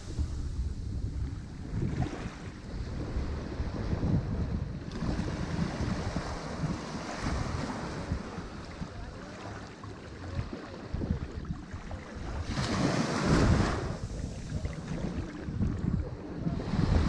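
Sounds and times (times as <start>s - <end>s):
ocean surf washing ashore: 0.0s - 17.0s
wave breaking: 4.8s - 17.0s.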